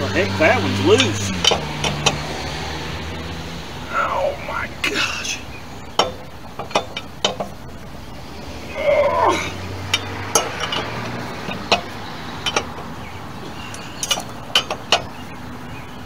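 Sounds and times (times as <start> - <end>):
lug wrench clinking on metal: 0.8 - 2.3, 5.9 - 7.7, 8.8 - 15.3
person grunting: 8.7 - 9.6.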